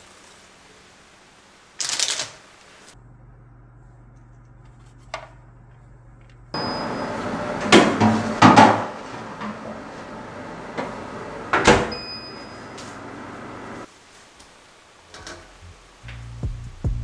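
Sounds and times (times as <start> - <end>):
oven door opening: 6.6 - 13.8.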